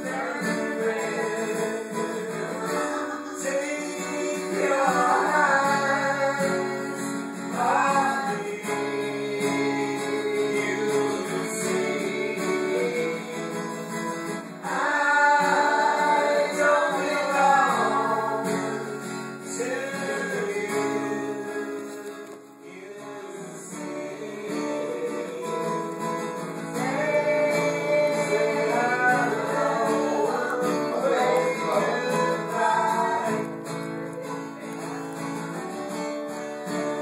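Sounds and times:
person singing: 0.0 - 37.0
strummed acoustic guitar: 0.0 - 37.0.

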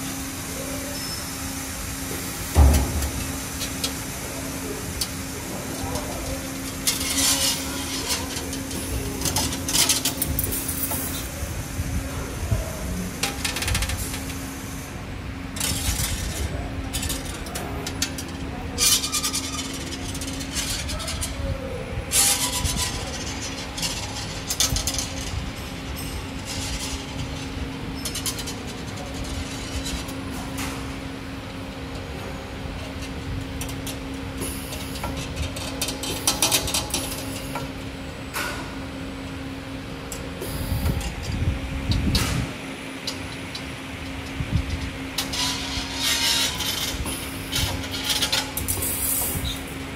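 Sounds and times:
bending machine humming: 0.0 - 49.9
sharp clicks and clacks of tools: 33.0 - 37.7.

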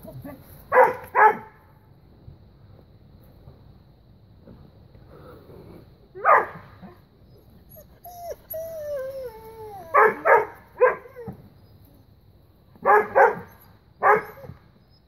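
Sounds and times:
dog barking: 0.7 - 1.5, 6.2 - 6.6, 10.0 - 11.0, 12.8 - 14.4
dog whining: 6.8 - 10.3, 10.9 - 12.0, 13.4 - 15.0.

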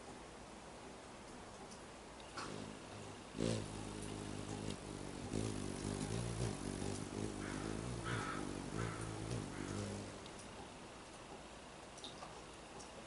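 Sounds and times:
engine humming: 2.4 - 10.8.

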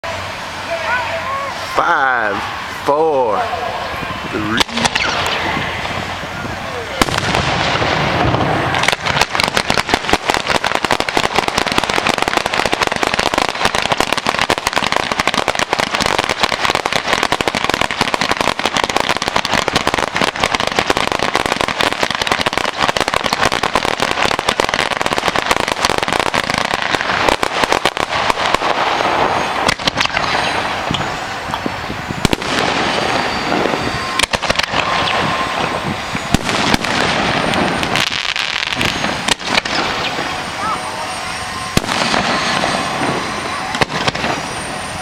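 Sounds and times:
fireworks crackling and popping: 0.0 - 45.0.

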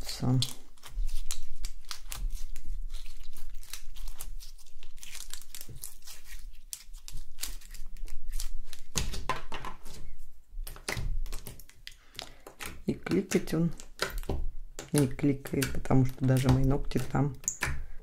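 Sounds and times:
slime crackling and tearing: 0.0 - 9.2.

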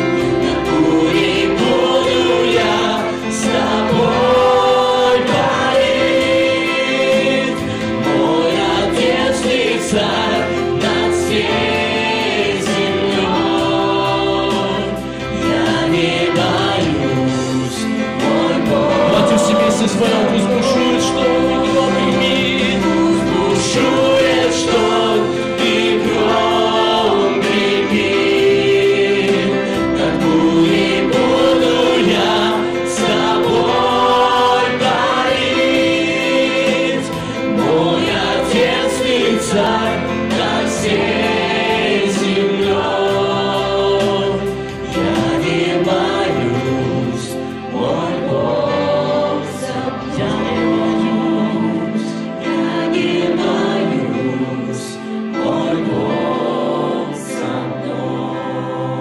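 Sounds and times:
electric keyboard: 0.0 - 59.0
group singing gospel song: 0.0 - 59.0.

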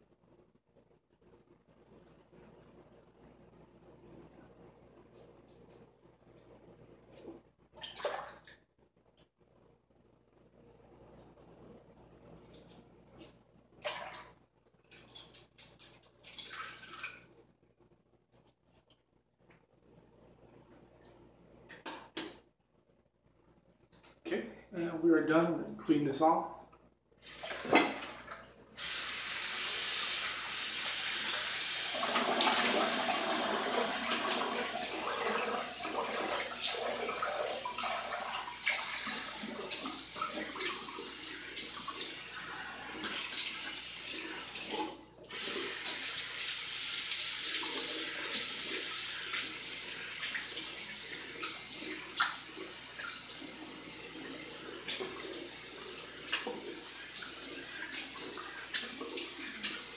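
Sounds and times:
water splashing: 13.8 - 14.3.

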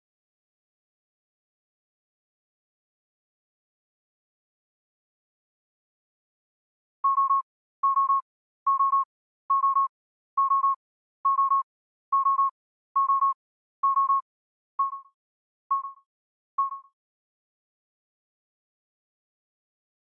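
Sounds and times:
electronic alarm beeping: 7.0 - 16.0, 16.6 - 16.9.

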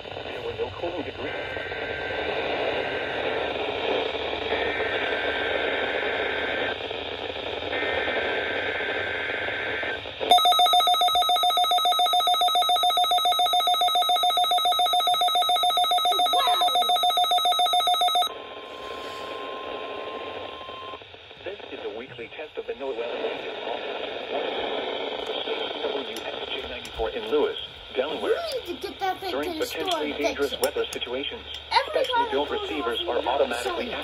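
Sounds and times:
radio static: 0.0 - 10.4, 14.6 - 34.0
rapidly pulsing alert beep: 10.3 - 18.3.

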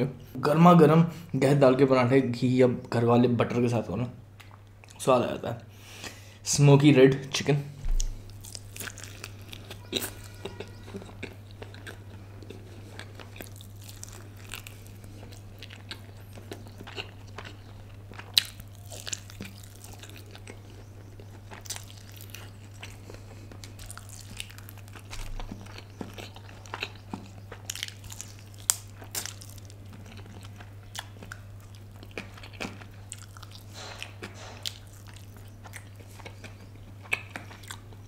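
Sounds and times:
low steady hum: 0.0 - 38.0
chicken crunching and chewing: 8.0 - 38.0.

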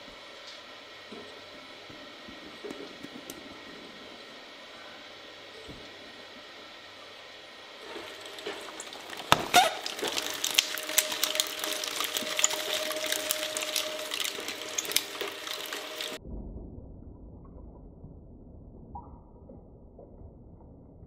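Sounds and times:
shredder machine whine: 0.0 - 16.2
wet crackling and splashing: 7.8 - 16.2
loud cracks: 8.2 - 16.2.

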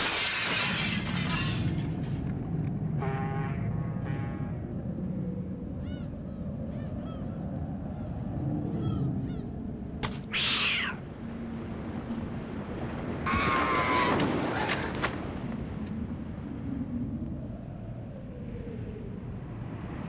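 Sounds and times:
harsh honking call: 3.0 - 4.6.

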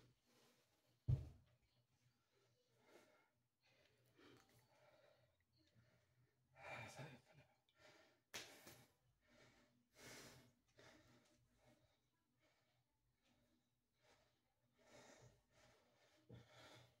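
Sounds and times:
man breathing hard: 7.7 - 12.9, 14.0 - 17.0.

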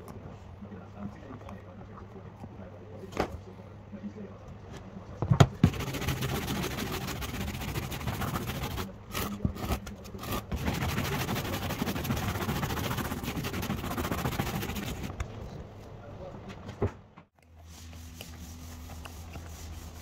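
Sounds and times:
stiff brush scrubbing glass: 5.4 - 15.2, 17.7 - 20.0.

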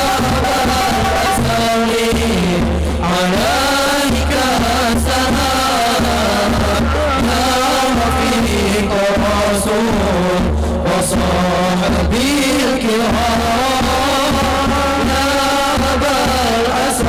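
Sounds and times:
frame drums and bass drum: 0.0 - 17.0
person singing devotional song: 0.0 - 17.0.

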